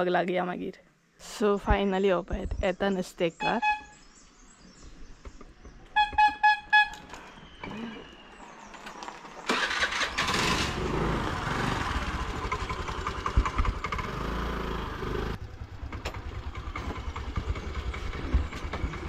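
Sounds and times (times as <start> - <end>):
scooter engine running: 9.5 - 19.0.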